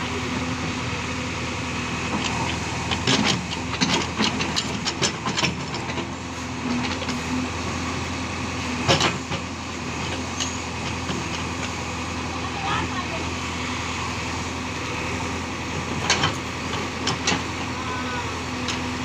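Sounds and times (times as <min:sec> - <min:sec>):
diesel engine running: 0:00.0 - 0:19.0
metal clanks and knocks: 0:02.2 - 0:06.1, 0:08.8 - 0:11.4, 0:15.9 - 0:17.5.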